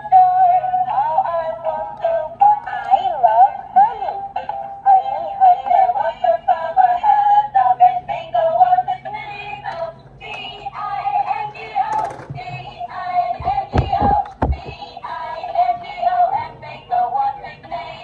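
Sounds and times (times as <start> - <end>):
tinny toy melody with synthetic singing: 0.0 - 18.0
thump: 13.4 - 14.9.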